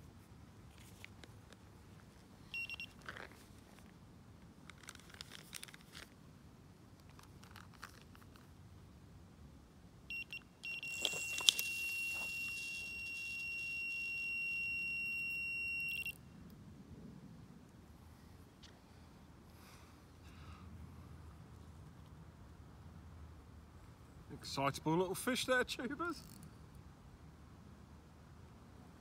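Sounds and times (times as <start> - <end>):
electronic bite alarm beeping: 2.6 - 2.9, 10.1 - 16.2.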